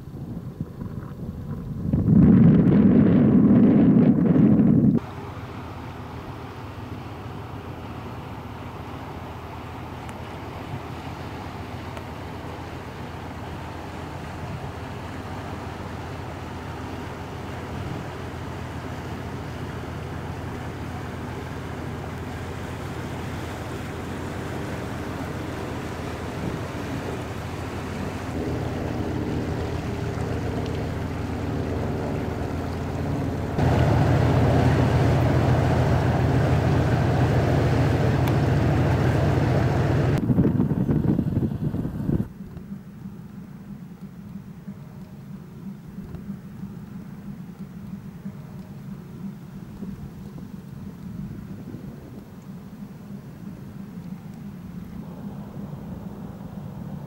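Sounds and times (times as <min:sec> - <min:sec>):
wind on microphone: 0:00.0 - 0:05.0, 0:21.6 - 0:42.9, 0:44.3 - 0:57.0
barge diesel engine drone: 0:00.0 - 0:57.0.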